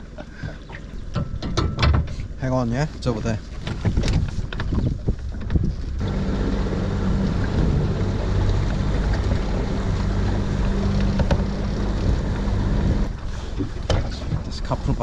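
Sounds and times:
wind buffeting microphone: 1.0 - 15.0
water rushing past hull: 2.1 - 15.0
outboard motor running: 3.7 - 15.0.

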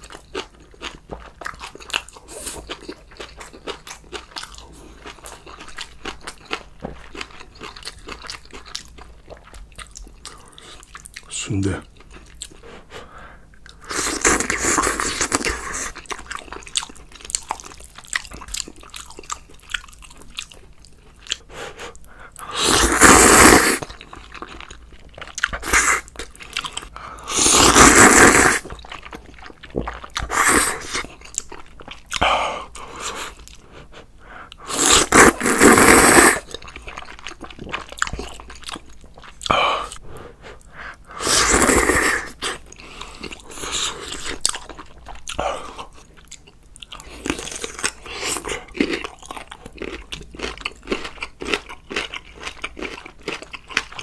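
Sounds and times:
chewing and biting: 0.0 - 11.3, 11.9 - 12.8, 13.6 - 40.7, 41.5 - 54.0
loud slurps: 22.4 - 23.9, 25.6 - 26.1, 27.3 - 28.7, 30.2 - 31.1, 34.6 - 36.5, 41.1 - 42.6.

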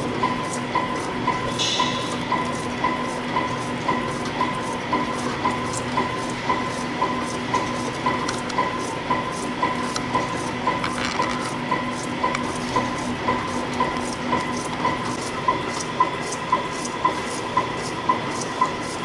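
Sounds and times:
spring coiling machine whirring: 0.0 - 19.0.

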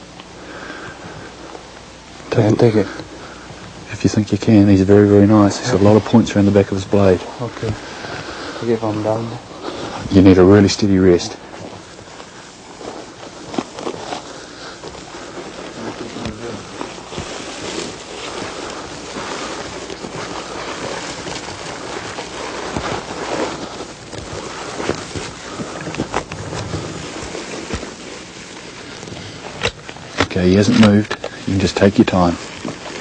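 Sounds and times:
handling knocks and rustles: 1.0 - 33.0.

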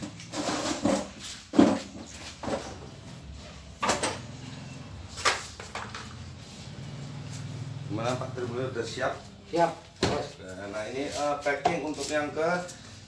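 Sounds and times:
wooden crate knocks and scrapes: 0.3 - 2.8.

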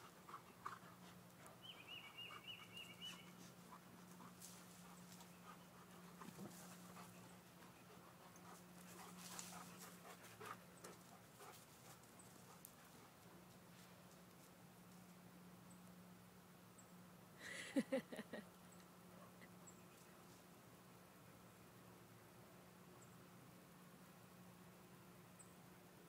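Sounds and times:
dog panting: 0.0 - 13.1
paws scratching in dirt: 0.0 - 15.2.

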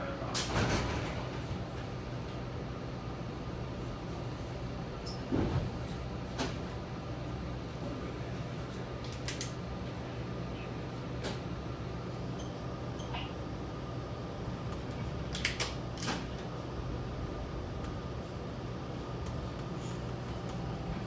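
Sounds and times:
train coach mechanical hum: 0.0 - 21.0.

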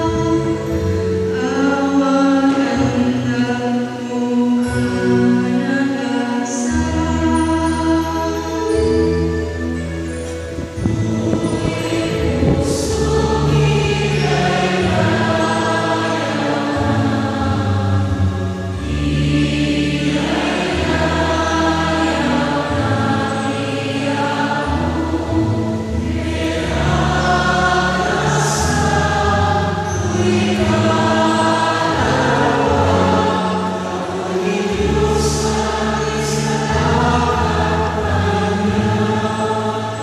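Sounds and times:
woman singing: 1.4 - 8.8, 11.2 - 16.1
sustained low accompaniment: 6.7 - 40.0.

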